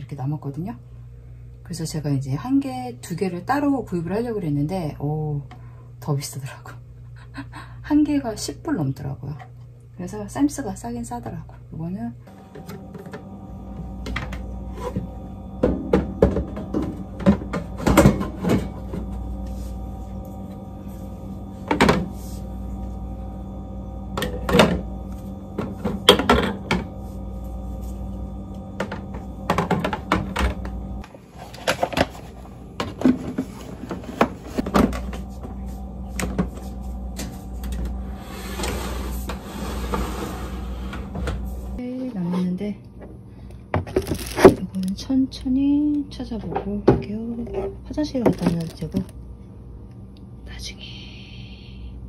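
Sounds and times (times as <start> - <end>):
steady freezer hum: 0.0 - 52.0
plastic containers clunking: 48.1 - 49.1.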